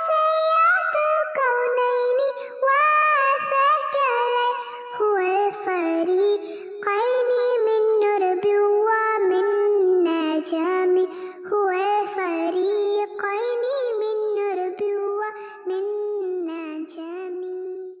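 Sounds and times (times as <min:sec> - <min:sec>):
high child-like voice singing: 0:00.0 - 0:18.0.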